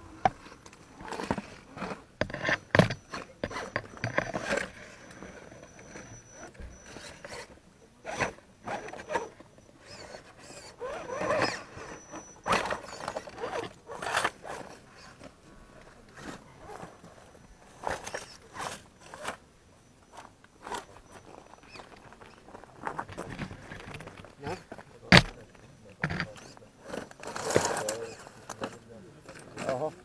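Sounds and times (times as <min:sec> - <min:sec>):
tyres scraping over stone: 0:00.2 - 0:07.5, 0:08.1 - 0:19.5, 0:20.1 - 0:30.0
small electric motor whirring: 0:01.8 - 0:15.1.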